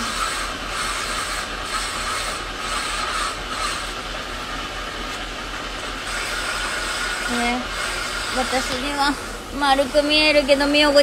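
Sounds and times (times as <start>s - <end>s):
grinding machine hum: 0.0s - 11.0s
gritty hiss of stone grinding: 6.1s - 9.3s.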